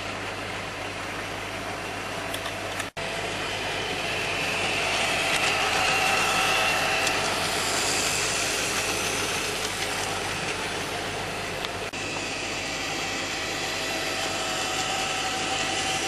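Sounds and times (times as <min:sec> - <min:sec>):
model train motor whirring: 0:03.6 - 0:11.9, 0:12.5 - 0:16.0.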